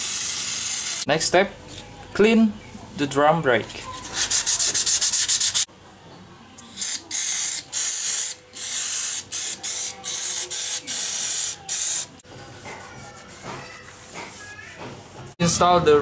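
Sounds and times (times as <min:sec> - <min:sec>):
aerosol spray hissing bursts: 0:00.0 - 0:01.1, 0:06.7 - 0:12.1
hand sanding strokes on metal: 0:04.0 - 0:05.7.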